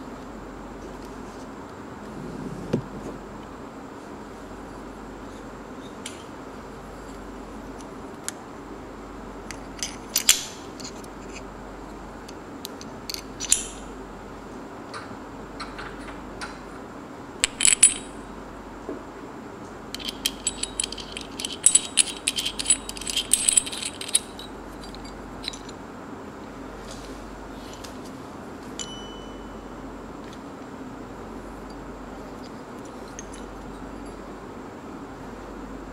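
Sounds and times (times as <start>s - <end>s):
metal parts clicking and clinking: 9.5s - 11.4s, 12.6s - 13.8s, 17.4s - 18.2s, 19.9s - 25.8s, 32.2s - 34.2s
metallic clicking and rattling: 19.9s - 25.8s.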